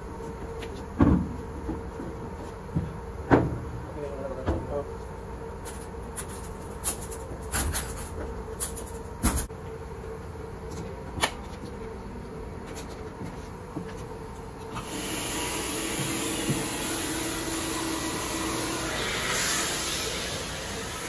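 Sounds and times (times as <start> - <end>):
steady machinery hum: 0.0 - 21.0
vacuum cleaner rushing: 14.8 - 21.0.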